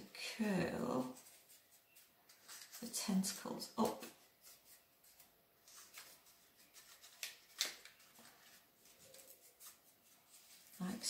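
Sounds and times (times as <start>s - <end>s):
cardboard rustling and crinkling: 0.8s - 11.0s
sharp cardboard crackles: 3.8s - 10.8s.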